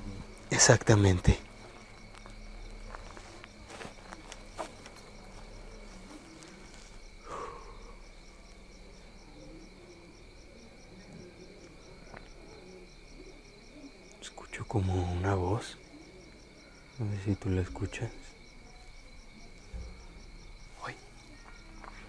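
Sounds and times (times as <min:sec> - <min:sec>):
crickets chirping: 0:00.0 - 0:22.0.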